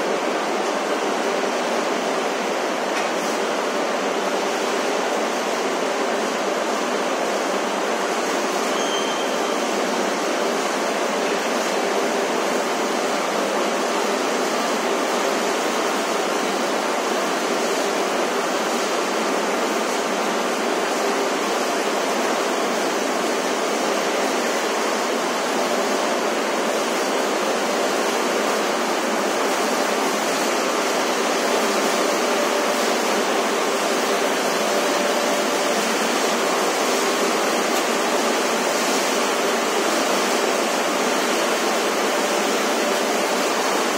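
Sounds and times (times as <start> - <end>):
waste sorting machinery din: 0.0 - 43.9.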